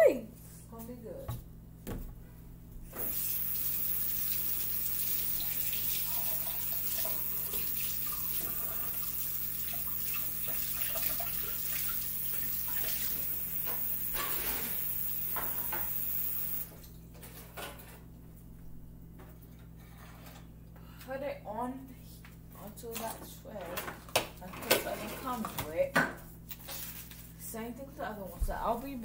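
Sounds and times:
faucet running into sink: 3.0 - 16.7.

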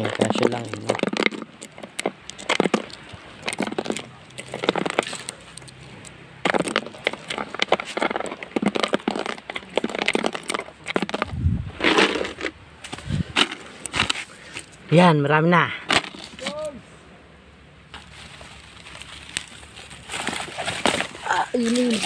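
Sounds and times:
footsteps crunching on twigs: 0.0 - 14.7, 17.9 - 22.0.

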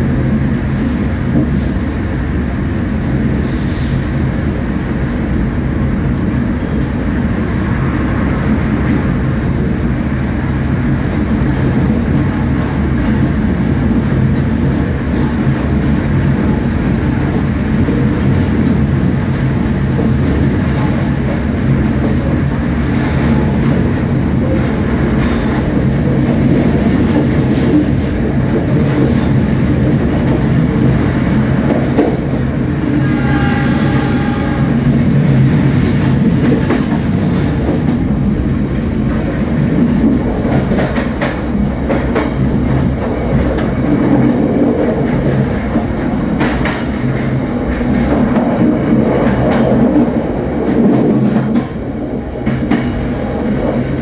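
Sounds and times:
train rumbling on rails: 0.0 - 54.0
train horn: 32.8 - 34.9.

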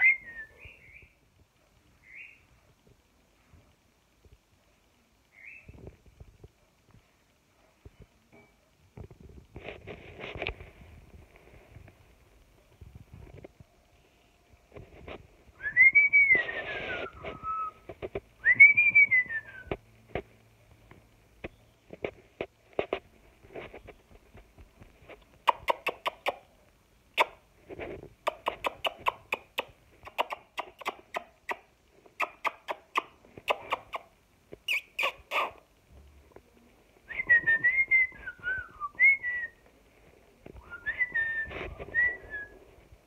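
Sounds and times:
cockatiel clicks and chirps: 25.4 - 26.4, 28.2 - 34.1, 34.7 - 35.6
rising and falling whistles: 40.6 - 42.6.

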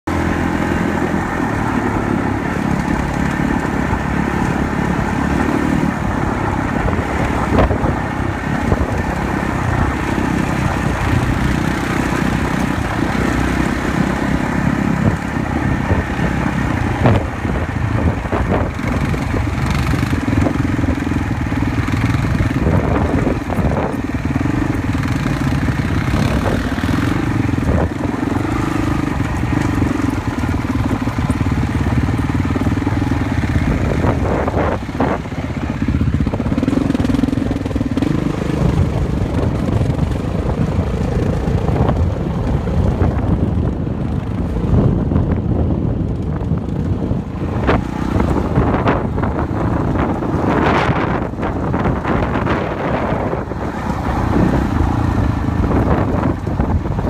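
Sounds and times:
quad bike engine running: 0.0 - 57.0.

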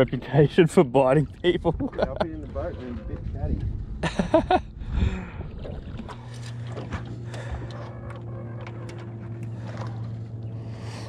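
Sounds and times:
electric trolling motor humming: 5.4 - 11.0.

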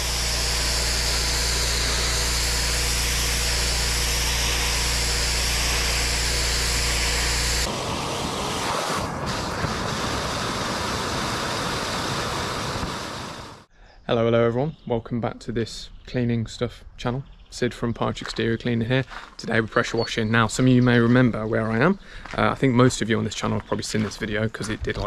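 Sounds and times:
machine low hum: 0.0 - 7.8
pressure washer water jet hissing: 0.0 - 13.7
vacuum hose sucking water: 0.0 - 13.7.

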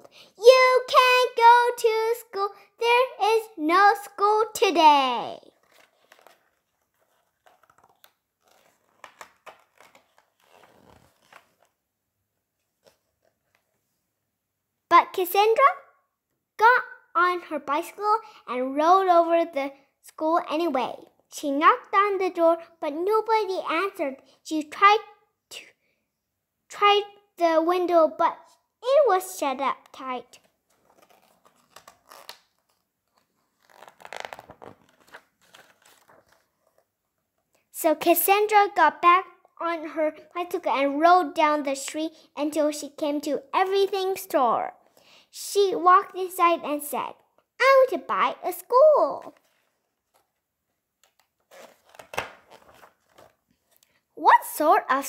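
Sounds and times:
book page turning: 5.4 - 11.8, 12.6 - 13.8, 29.8 - 36.9, 49.2 - 50.4, 51.0 - 54.0.

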